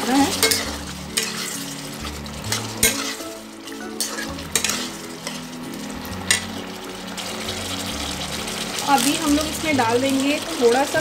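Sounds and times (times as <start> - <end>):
gravy bubbling and sizzling: 0.0 - 11.0
spatula stirring in pan: 0.0 - 11.0
spatula clinking on pan: 0.3 - 1.7, 2.5 - 5.4, 6.3 - 6.6.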